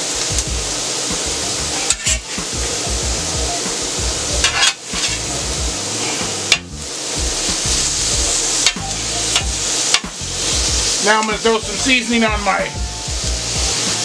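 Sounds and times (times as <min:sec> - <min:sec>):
chicken sizzling on a griddle: 0:00.0 - 0:14.0
metal spatula scraping steel: 0:01.8 - 0:02.4, 0:04.4 - 0:05.3.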